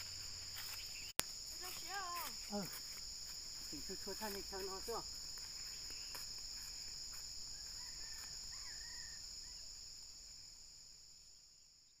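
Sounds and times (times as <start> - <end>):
high-pitched insect chorus: 0.0 - 12.0.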